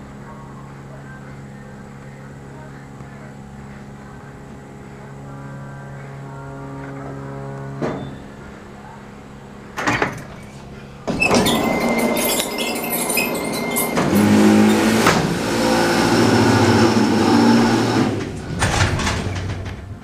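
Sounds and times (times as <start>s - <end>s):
low motor hum: 0.0s - 20.0s
elevator doors running: 6.1s - 20.0s
elevator door clank: 11.1s - 15.6s, 17.6s - 20.0s
steady high tone: 11.2s - 17.6s.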